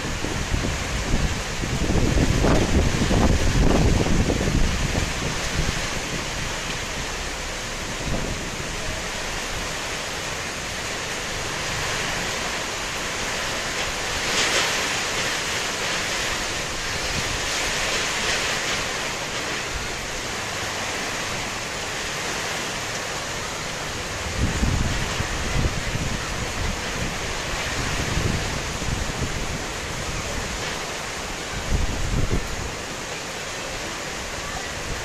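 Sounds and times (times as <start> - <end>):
heavy rain pouring: 0.0 - 35.0
wind gusts: 0.0 - 35.0.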